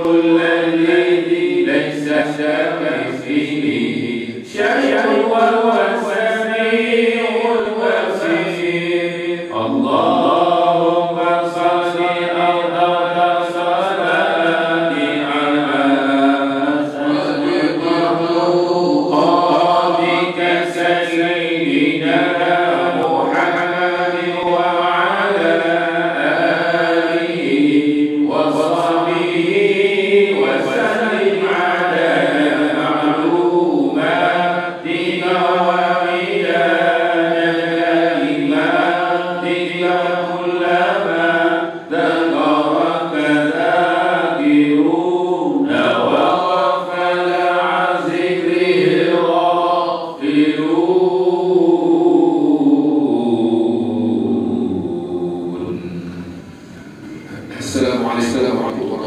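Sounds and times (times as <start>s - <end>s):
man reciting in melodic chant: 0.0s - 49.5s, 53.8s - 59.0s.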